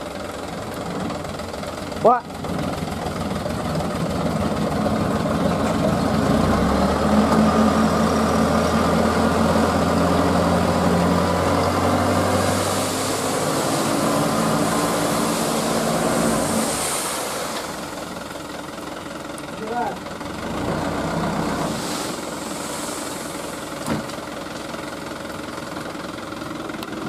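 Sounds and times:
diesel engine running: 0.0 - 27.0
sand sliding hiss: 12.3 - 18.0, 21.6 - 23.8.

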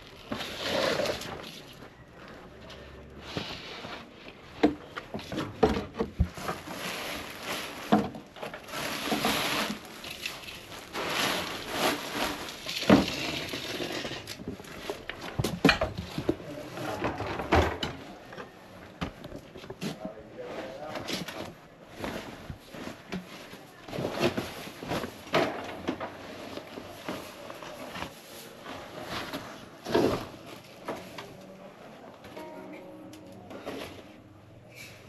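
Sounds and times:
rustling: 0.0 - 5.4, 6.1 - 32.7
hard objects clattering and knocking: 4.3 - 19.9.

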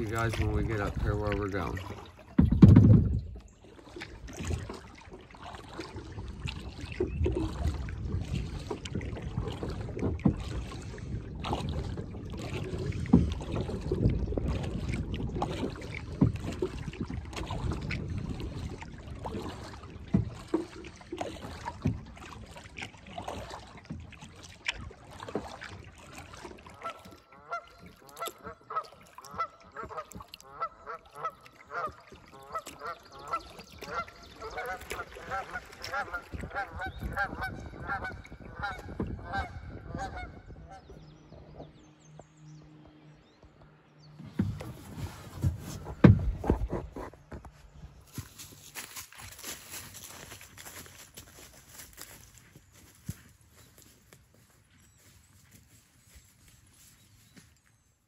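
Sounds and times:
geese honking: 26.8 - 40.8
rustling and knocking: 44.2 - 47.6.

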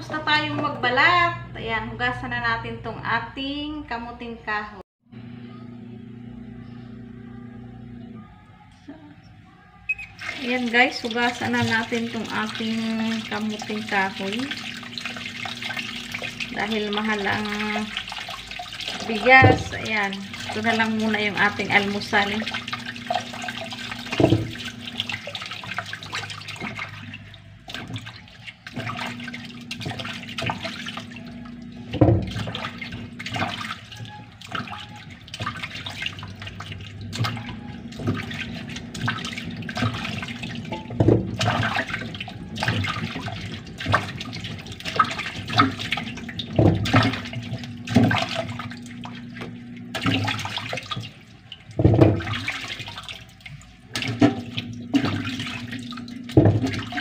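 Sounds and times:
knocks and splashes: 10.1 - 57.0
tap running into bowl: 11.0 - 25.2, 28.7 - 51.2, 54.0 - 57.0.

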